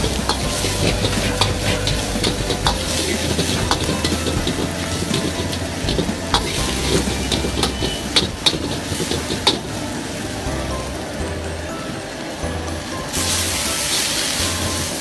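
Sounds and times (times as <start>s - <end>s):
metal ladle scraping wok: 0.0s - 9.9s
shrimp sizzling in a wok: 0.0s - 11.0s, 12.8s - 15.0s.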